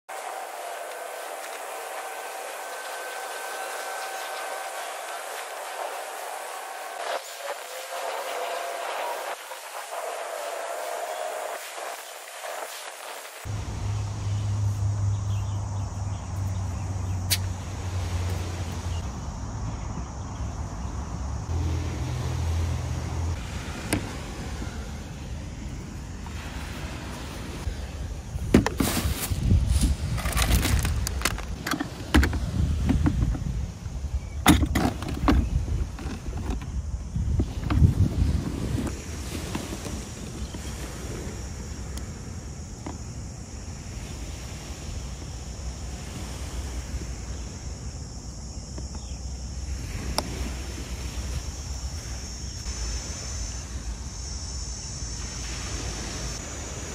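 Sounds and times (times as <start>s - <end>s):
wind buffeting microphone: 16.2s - 42.1s.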